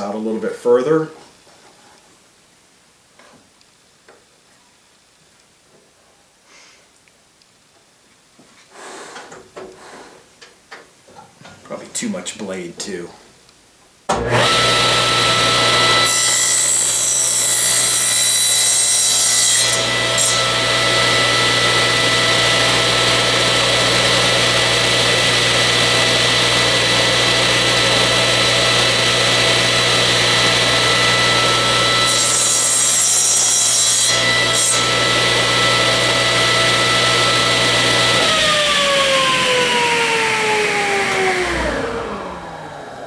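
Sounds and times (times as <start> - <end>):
saw blade cutting wood: 14.1 - 42.2
table saw running: 14.1 - 43.0.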